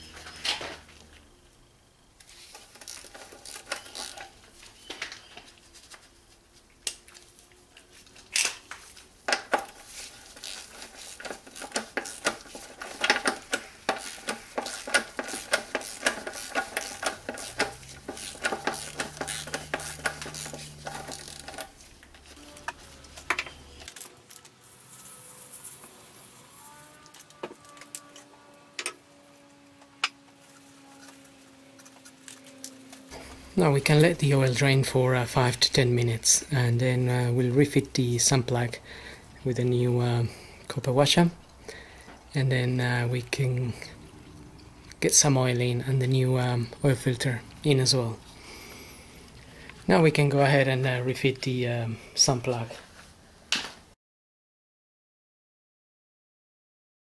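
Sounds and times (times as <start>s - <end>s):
ratchet wrench clicking: 10.4s - 21.7s.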